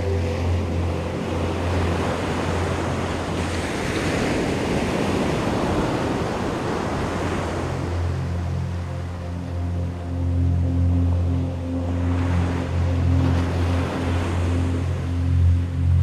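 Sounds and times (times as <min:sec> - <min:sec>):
ocean surf breaking: 0:00.0 - 0:09.6
low hum of background music: 0:00.0 - 0:16.0.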